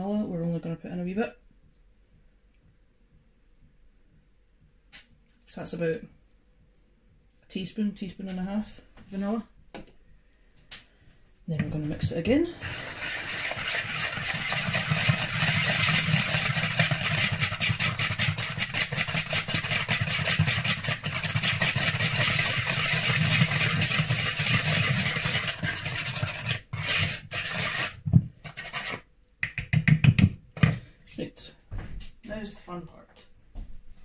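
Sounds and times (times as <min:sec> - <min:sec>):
whisk scraping in plastic bowl: 0:11.6 - 0:29.1.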